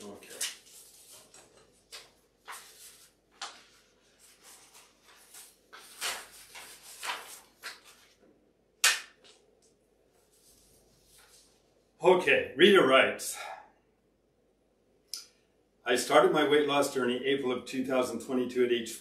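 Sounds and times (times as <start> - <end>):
paper rustling: 0.0 - 8.3, 10.1 - 11.6.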